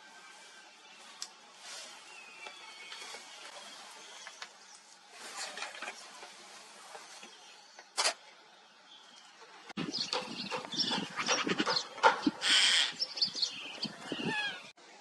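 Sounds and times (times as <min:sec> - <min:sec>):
outdoor background hiss: 0:00.0 - 0:15.0
wild birds chirping: 0:08.5 - 0:14.8.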